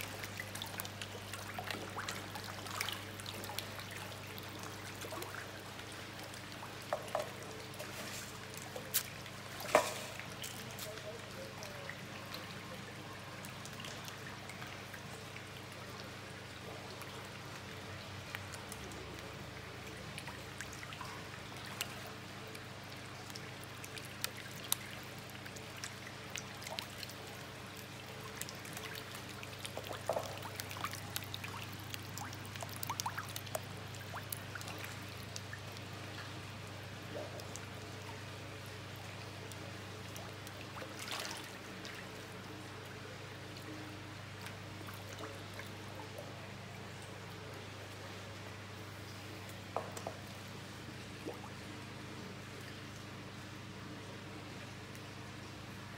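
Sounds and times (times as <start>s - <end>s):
fish splashing at water surface: 0.0s - 11.1s, 23.0s - 36.4s, 40.0s - 42.4s
running water in fish tank: 0.0s - 55.9s.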